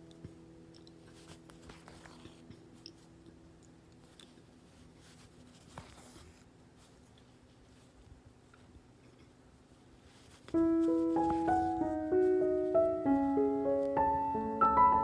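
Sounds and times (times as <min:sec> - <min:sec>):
background music note: 0:10.6 - 0:15.0.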